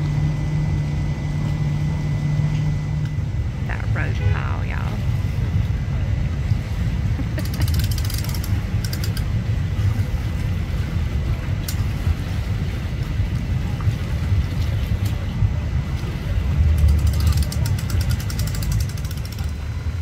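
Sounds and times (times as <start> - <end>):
boat engines idling: 0.0 - 20.0
wind on microphone: 0.0 - 20.0
hand winch ratcheting: 7.4 - 9.3, 16.8 - 19.6.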